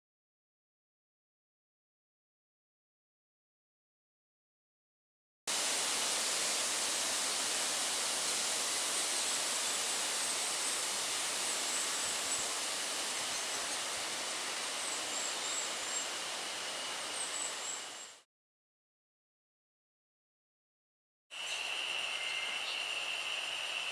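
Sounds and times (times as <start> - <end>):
steady outdoor hiss: 5.5 - 18.2, 21.3 - 23.9
high bird chirps: 21.4 - 23.9.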